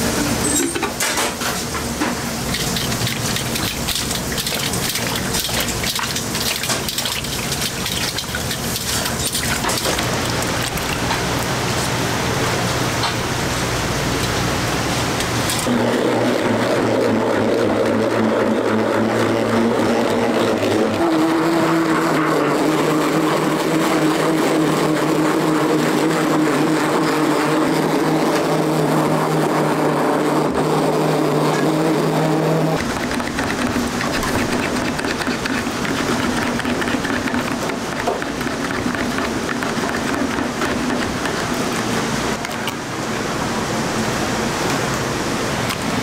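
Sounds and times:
immersion blender motor whining: 15.6s - 41.3s.

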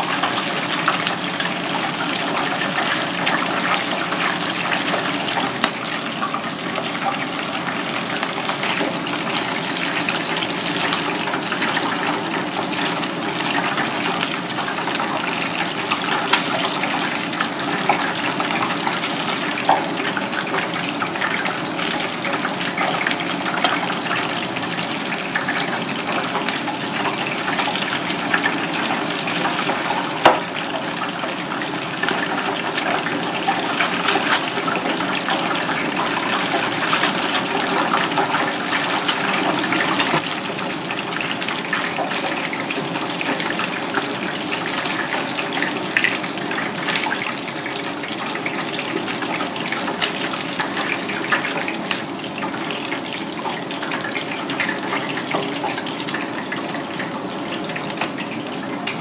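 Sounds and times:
fish deep-frying in oil: 0.0s - 59.0s.

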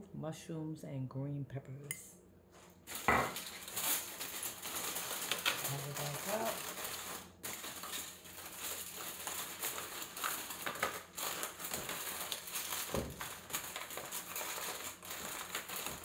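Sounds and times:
aluminium foil crinkling: 2.5s - 16.0s.

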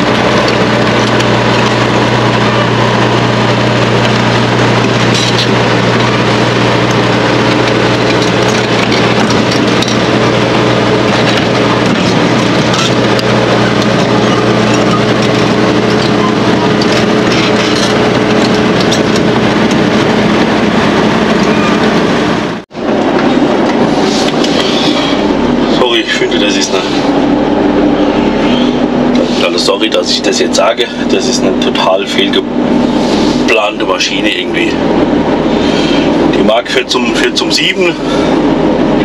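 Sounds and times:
diesel engine running: 0.0s - 39.0s
faint clatter: 4.0s - 19.9s.

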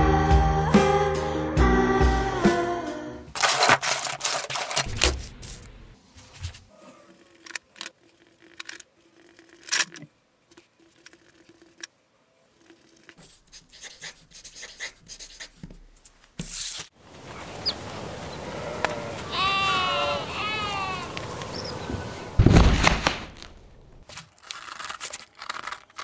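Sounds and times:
loud knocks: 22.4s - 23.2s.

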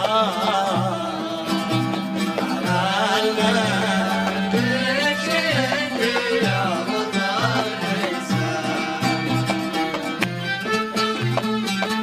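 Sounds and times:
sliding stringed instrument melody: 0.0s - 12.0s.

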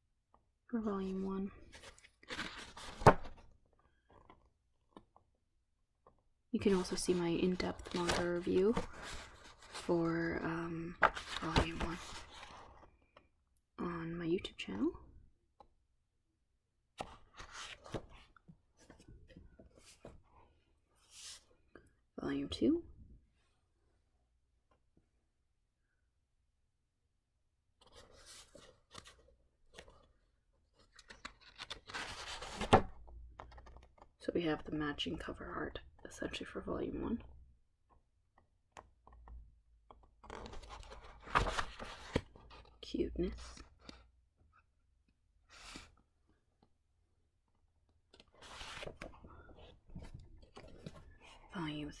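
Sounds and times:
paper book cover rustling: 1.6s - 5.1s, 6.7s - 9.9s, 10.9s - 13.2s, 17.0s - 21.5s, 27.8s - 34.1s, 40.0s - 42.7s, 48.0s - 51.5s
paper rustle: 1.7s - 3.4s, 7.4s - 9.9s, 40.2s - 42.6s, 48.2s - 51.4s.

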